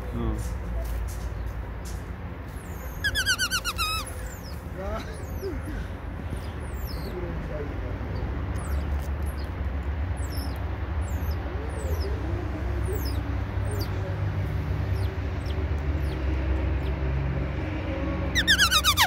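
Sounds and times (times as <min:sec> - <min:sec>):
high-pitched animal chirps: 0:02.7 - 0:04.6, 0:18.4 - 0:19.0.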